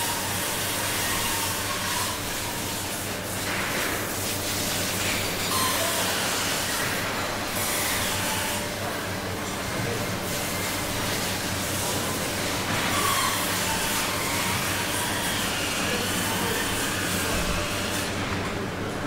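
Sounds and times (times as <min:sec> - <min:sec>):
conveyor machine hum: 0:00.0 - 0:19.0
metal trolleys squealing: 0:05.5 - 0:06.1.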